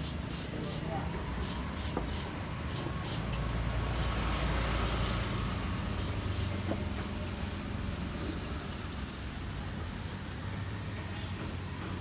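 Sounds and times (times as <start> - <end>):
vehicle engine rumbling: 1.4 - 12.0.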